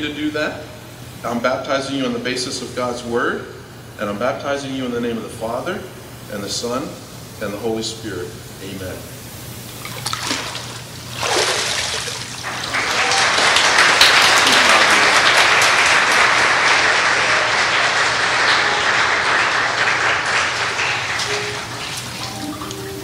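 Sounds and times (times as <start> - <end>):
water splashing in a pool: 9.7 - 13.2, 20.6 - 23.0
congregation clapping: 11.5 - 23.0.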